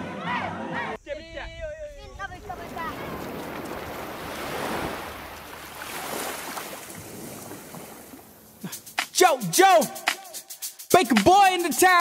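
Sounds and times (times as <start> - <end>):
wind buffeting microphone: 1.0 - 8.4
water rushing past boat hull: 2.2 - 8.6.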